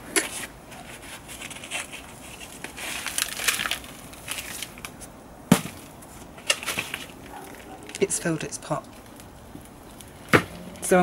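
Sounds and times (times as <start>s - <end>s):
compost rustling: 0.0s - 11.0s
plastic pot crackling: 0.0s - 11.0s.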